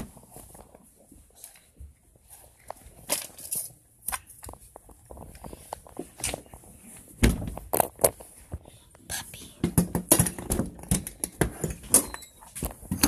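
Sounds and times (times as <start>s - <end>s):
objects being handled: 0.0s - 13.0s.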